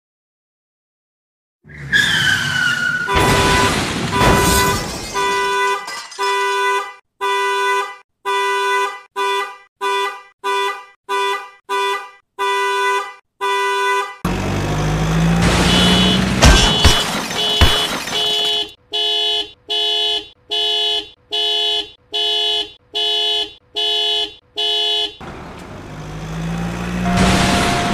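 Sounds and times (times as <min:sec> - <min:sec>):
falling squeal: 0:01.7 - 0:05.4
cartoon car horn honking: 0:03.0 - 0:14.3, 0:15.4 - 0:25.2, 0:27.0 - 0:27.9
burst of noise: 0:27.1 - 0:27.9.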